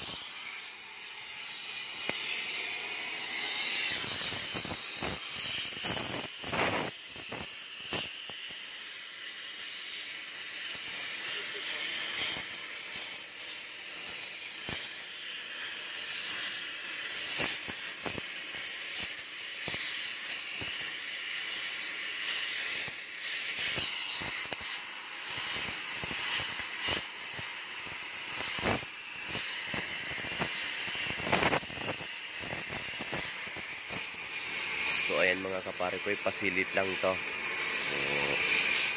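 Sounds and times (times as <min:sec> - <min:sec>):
cutting torch hissing: 0:00.0 - 0:38.9
sharp clicks and pops: 0:28.3 - 0:35.1.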